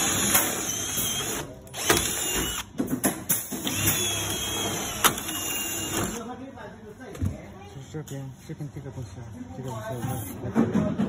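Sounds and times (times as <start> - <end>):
drill driver running: 0.0 - 2.8, 3.5 - 6.2.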